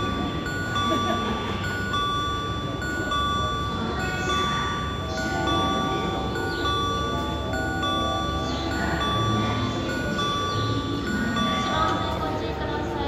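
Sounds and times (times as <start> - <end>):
two-note electronic chime: 0.0 - 12.8
train rumbling: 0.0 - 13.0.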